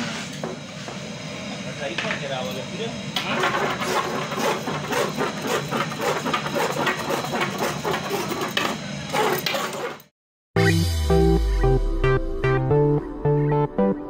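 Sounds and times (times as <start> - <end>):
pastry wheel scraping dough: 3.3 - 10.1.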